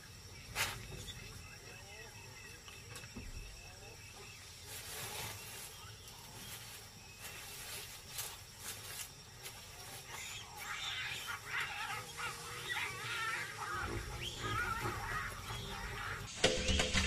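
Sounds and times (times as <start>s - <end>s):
steady outdoor hiss: 0.0s - 17.0s
soft scratchy sounds: 4.2s - 16.3s
animal calls: 9.4s - 16.7s.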